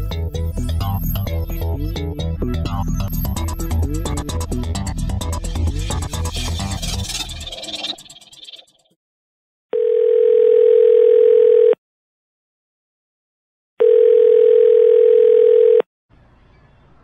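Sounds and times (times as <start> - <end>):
telephone ringback tone: 9.8 - 11.8, 13.8 - 15.9.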